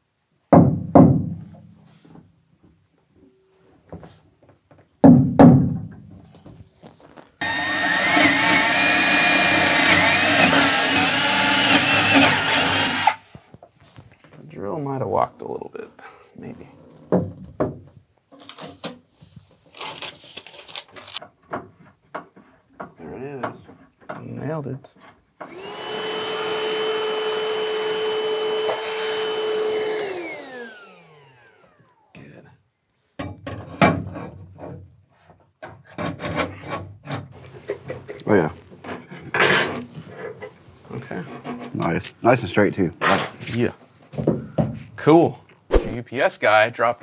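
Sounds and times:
cordless drill boring into wood: 7.4 - 13.2, 25.4 - 32.1
small vacuum motor whining: 7.4 - 13.2, 25.5 - 32.1.

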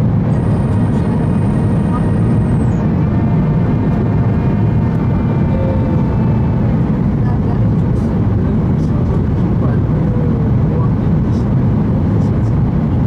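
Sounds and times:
airplane cabin engine roar: 0.0 - 13.0.

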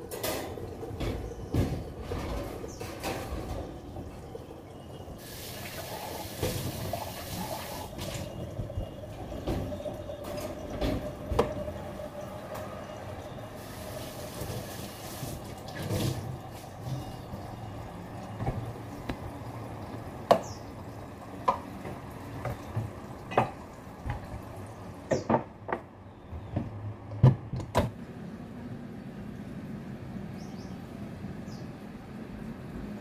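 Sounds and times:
dishes clacking and knocking: 0.0 - 4.3, 8.0 - 11.7, 21.4 - 24.3
tap running: 5.4 - 11.8.

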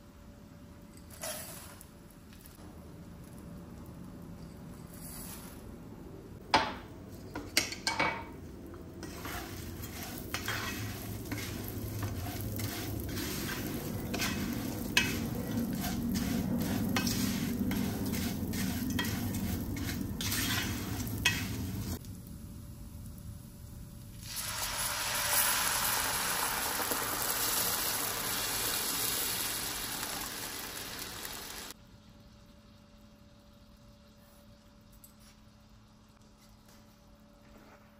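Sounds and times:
food frying in hot oil: 7.5 - 36.3
utensil stirring and scraping pan: 9.0 - 22.0.

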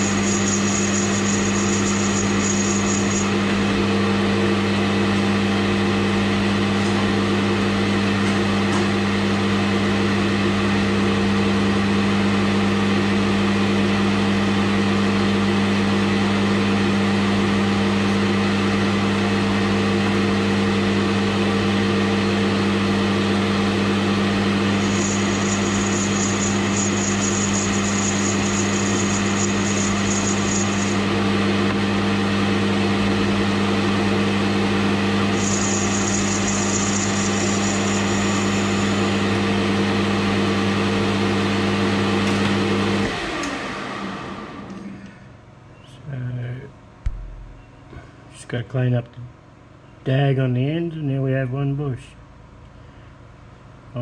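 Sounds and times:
tool hissing on spinning brass: 0.0 - 3.3, 24.7 - 31.0, 35.3 - 39.3
metal lathe running: 0.0 - 4.3, 23.6 - 31.7, 34.7 - 40.2.

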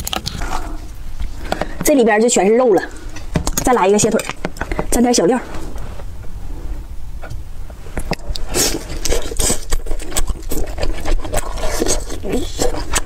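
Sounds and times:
chewing and slurping: 8.0 - 13.0.

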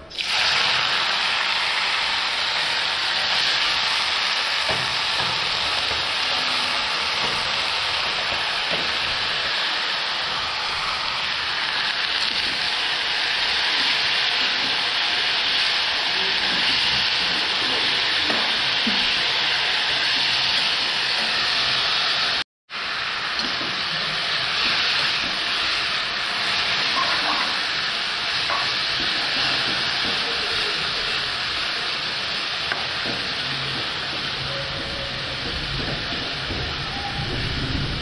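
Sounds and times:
food sizzling in oil: 0.0 - 38.0.

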